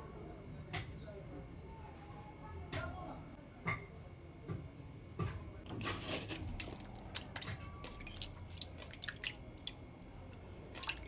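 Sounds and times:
small clicks and splats: 5.7s - 11.0s
wet cloth squished by hand: 5.9s - 11.0s
water dripping into basin: 6.5s - 11.0s.

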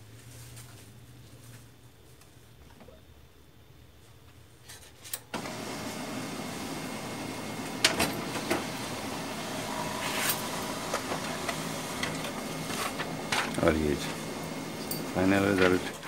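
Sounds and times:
laser printer motor running: 5.4s - 16.0s
printer mechanism clicks: 10.4s - 16.0s.

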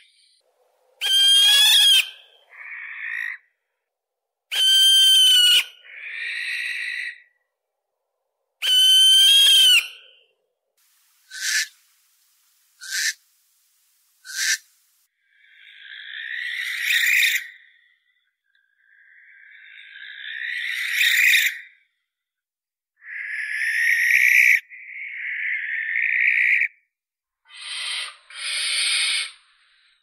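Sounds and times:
owl soft noisy call: 0.0s - 3.4s, 10.9s - 15.1s, 27.5s - 30.0s
owl screeching: 1.0s - 3.4s, 4.5s - 7.2s, 8.6s - 10.1s, 11.3s - 11.8s, 12.8s - 13.2s, 14.2s - 14.7s, 15.5s - 17.7s, 19.7s - 21.6s, 27.5s - 29.4s
owl short sharp calls: 1.0s - 3.4s, 11.2s - 11.8s, 12.8s - 13.2s, 14.2s - 14.8s.

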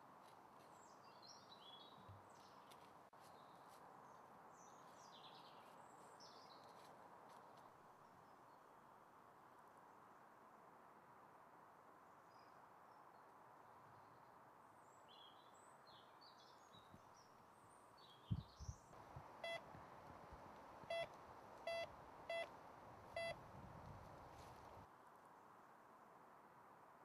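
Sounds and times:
metal detector beeping: 19.4s - 19.6s, 20.9s - 22.5s, 23.2s - 23.4s.

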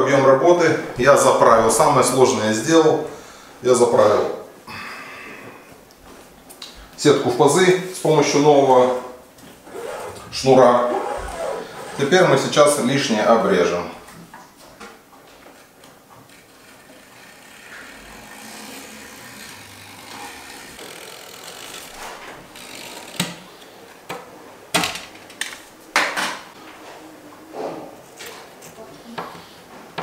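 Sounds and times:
blade trimming screen mesh: 16.3s - 23.5s.

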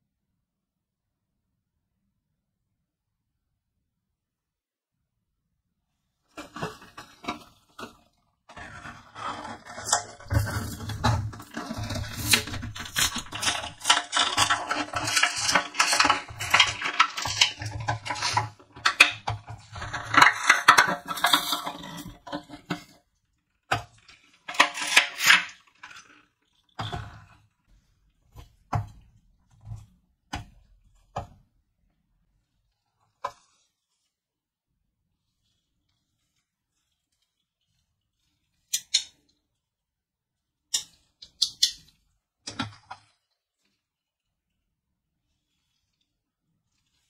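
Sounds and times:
plastic packaging crinkling: 9.2s - 22.1s.

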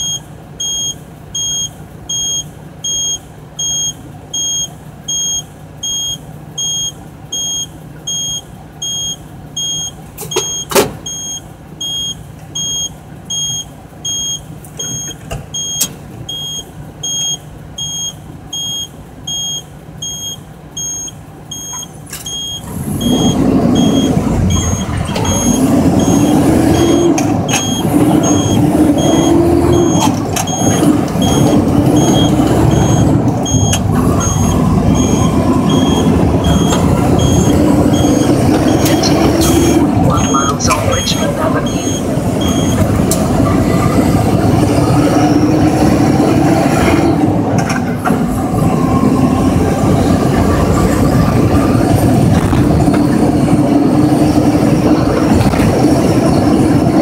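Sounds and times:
diesel truck engine: 0.0s - 57.0s
high electronic beeping: 22.4s - 42.9s.

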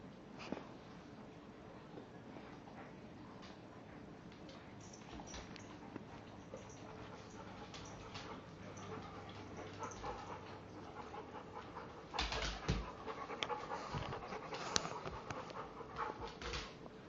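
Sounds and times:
dogs scuffling on wooden floor: 4.9s - 16.8s
dog panting: 5.3s - 16.8s.

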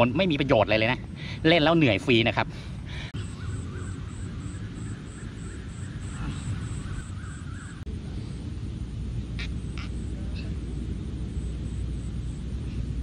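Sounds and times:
high steady insect chirp: 0.0s - 13.0s
bird warbling calls: 3.2s - 7.9s, 9.3s - 10.0s.

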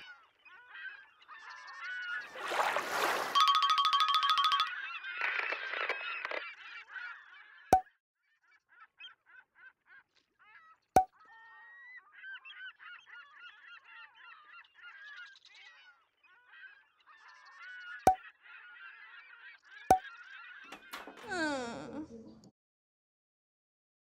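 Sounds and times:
flock of birds honking: 0.0s - 7.6s, 11.4s - 21.2s.

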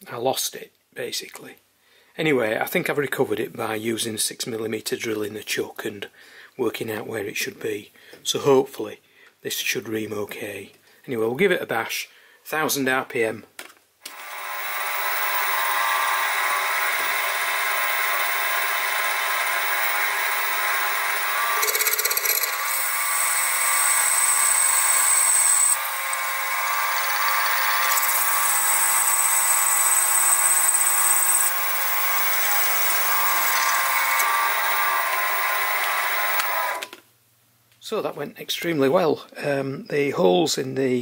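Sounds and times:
mill spindle motor whine: 14.1s - 36.9s
reamer cutting brass squeal: 14.2s - 36.8s.

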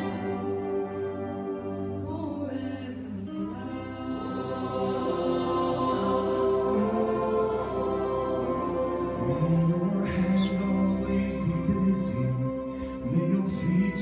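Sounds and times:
choir singing held chords: 3.2s - 14.0s.

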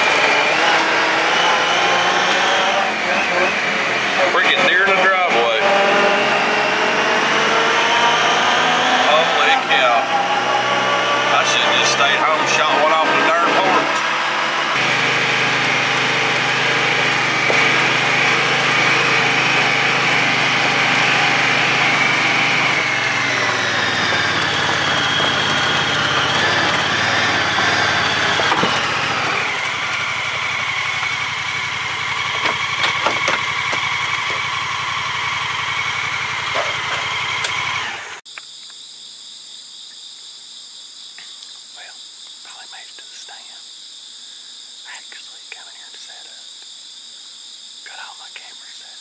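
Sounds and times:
vehicle engine running: 0.0s - 38.2s
insects trilling: 38.3s - 49.0s.

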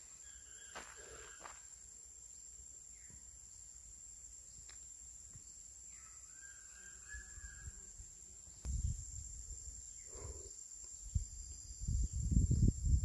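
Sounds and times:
high-pitched insect drone: 0.0s - 13.0s
faint bird call: 0.2s - 1.6s.

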